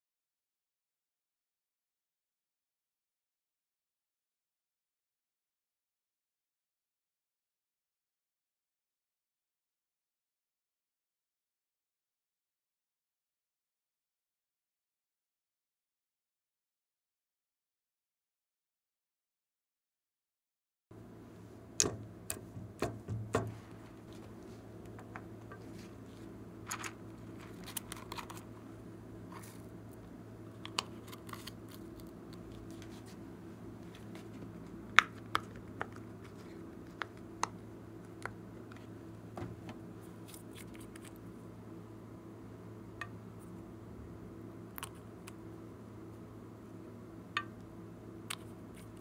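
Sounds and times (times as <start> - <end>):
steady low hum: 20.9 - 49.0.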